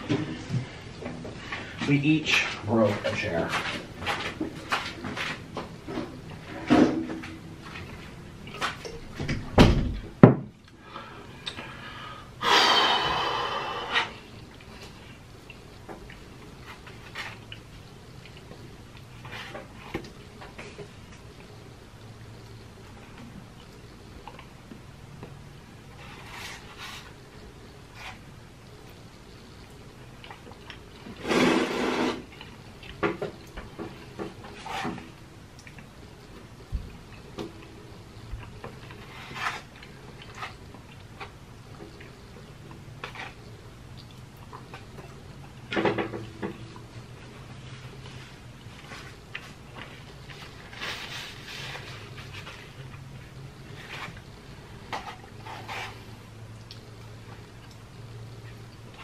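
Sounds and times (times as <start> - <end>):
breathy exhale: 10.8 - 14.2
person slurping from cup: 12.4 - 14.3, 31.1 - 32.3.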